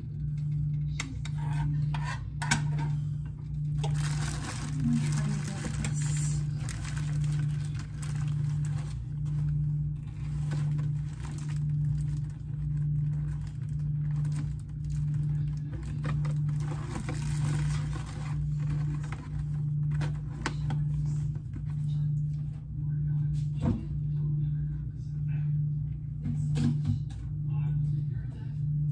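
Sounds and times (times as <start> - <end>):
low pulsing hum: 0.0 - 28.9
plastic bag crinkling: 3.7 - 20.7.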